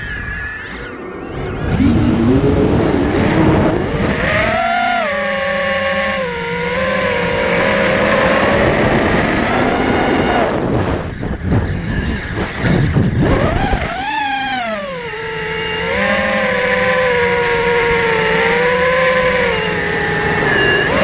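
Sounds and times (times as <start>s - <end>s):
drone motors whining: 0.0s - 21.0s
gusty buffeting: 1.3s - 4.6s, 6.3s - 15.4s.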